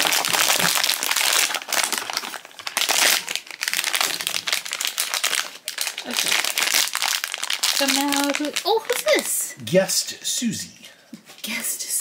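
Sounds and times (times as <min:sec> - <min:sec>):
foil pouch crinkling: 0:00.0 - 0:09.3.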